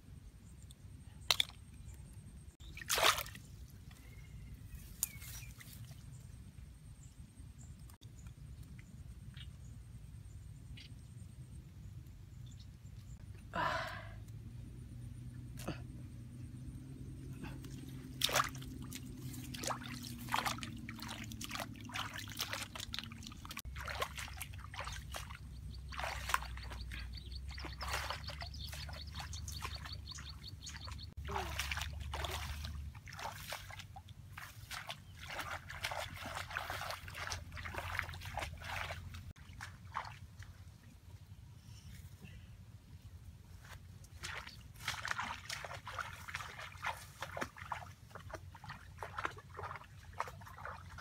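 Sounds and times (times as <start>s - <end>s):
walking through wet grass: 2.6s - 6.3s, 17.4s - 40.9s, 43.5s - 51.0s.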